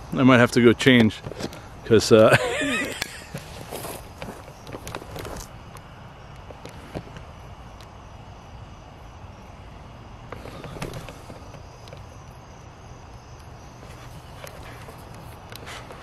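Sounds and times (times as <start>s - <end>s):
crickets chirping: 0.0s - 16.0s
crackling and rustling: 2.4s - 8.0s, 10.2s - 12.4s, 13.0s - 16.0s.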